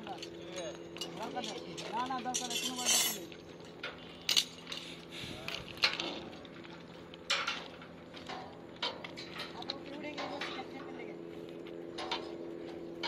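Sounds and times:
steady low hum: 0:00.0 - 0:13.0
metallic clinks and knocks: 0:00.1 - 0:04.8.

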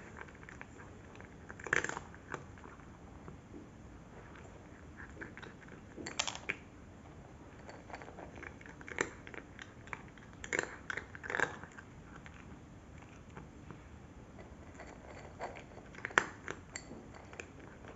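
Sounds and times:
cat crunching dry kibble: 0:00.0 - 0:03.4, 0:04.2 - 0:06.7, 0:07.6 - 0:13.8, 0:14.4 - 0:17.9.

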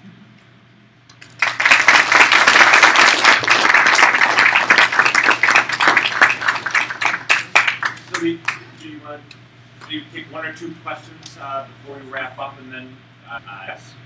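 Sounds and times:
audience applauding: 0:01.1 - 0:08.6.

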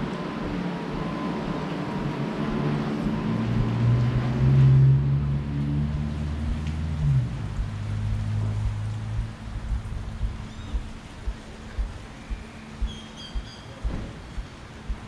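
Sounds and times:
vehicle engine passing by: 0:02.2 - 0:10.6.

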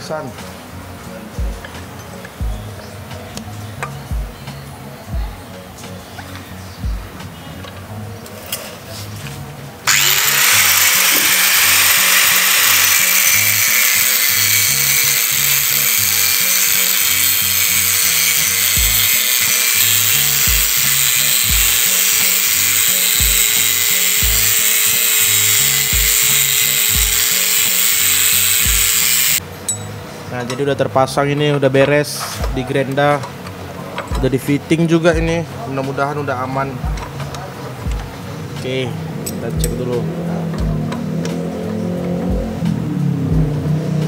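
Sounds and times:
angle grinder grinding metal: 0:09.8 - 0:29.4.

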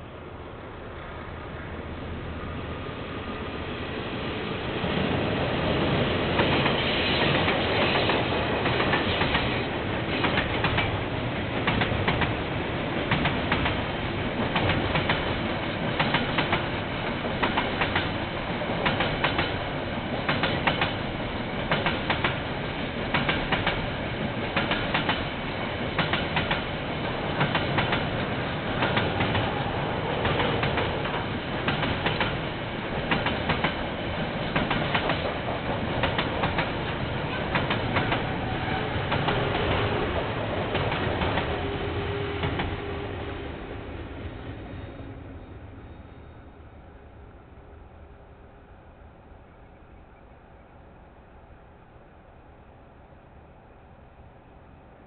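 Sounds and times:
steady train rumble: 0:00.0 - 0:55.0
train wheels clacking over rail joints: 0:06.3 - 0:12.4, 0:13.1 - 0:42.8.

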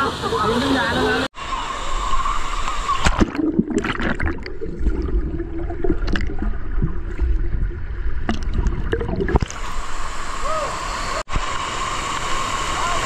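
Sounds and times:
water gurgling and splashing: 0:01.4 - 0:10.4.

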